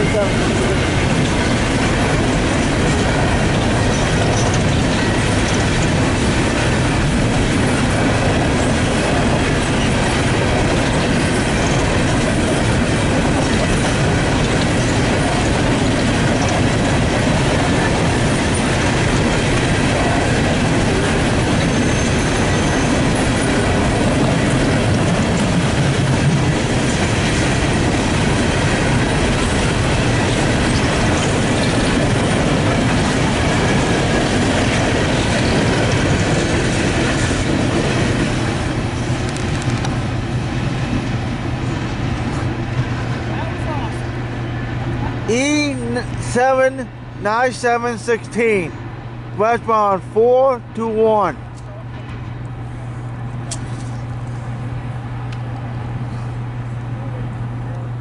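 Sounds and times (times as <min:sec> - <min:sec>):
freight train wheels clattering: 0:00.0 - 0:43.6.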